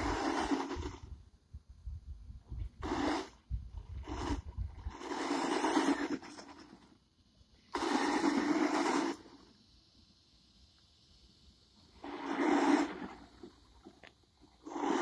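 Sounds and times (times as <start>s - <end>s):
rc truck electric motor: 0.0s - 1.2s, 2.8s - 7.0s, 7.7s - 9.6s
tyres scrubbing loose dirt: 0.0s - 1.2s, 2.6s - 7.0s, 7.7s - 9.5s, 11.8s - 15.0s.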